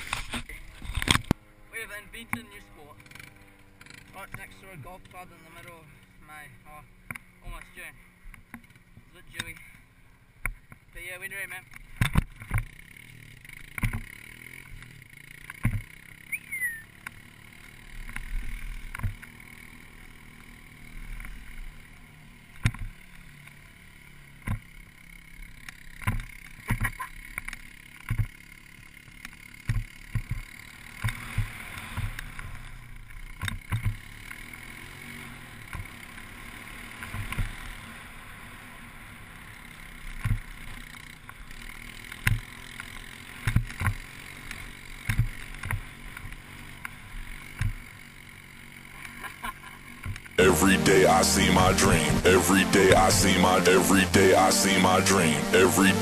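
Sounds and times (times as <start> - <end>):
skis sliding over grass: 0.0 - 1.0.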